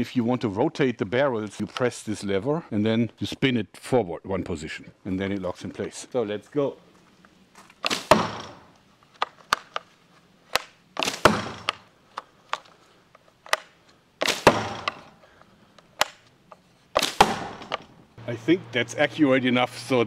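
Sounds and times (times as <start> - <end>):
sharp wooden clicks: 7.7 - 9.9, 10.5 - 18.0
rubber bands slapping: 7.8 - 9.8, 10.5 - 11.9, 13.5 - 15.2, 16.9 - 17.9.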